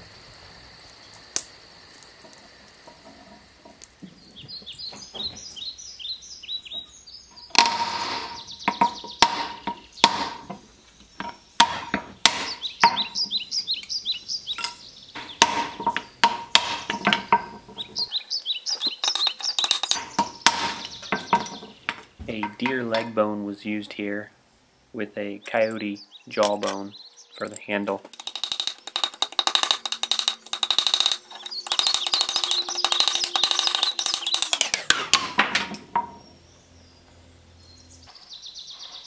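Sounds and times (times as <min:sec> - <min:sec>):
high chirps: 0:12.3 - 0:22.0, 0:28.1 - 0:35.0.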